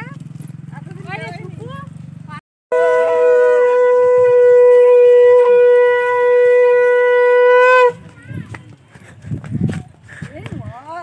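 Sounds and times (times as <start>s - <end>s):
conch shell blown: 2.7s - 8.1s.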